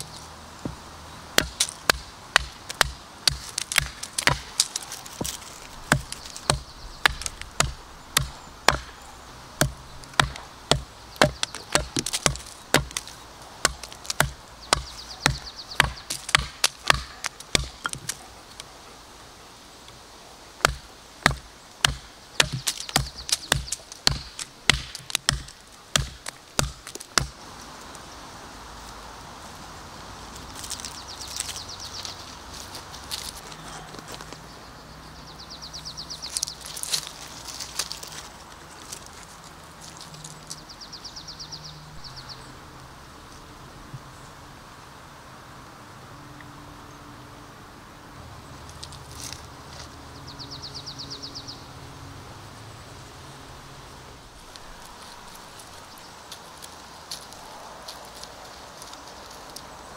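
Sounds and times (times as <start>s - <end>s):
knife chopping into wood: 1.4s - 9.0s, 9.6s - 18.2s, 20.6s - 27.3s.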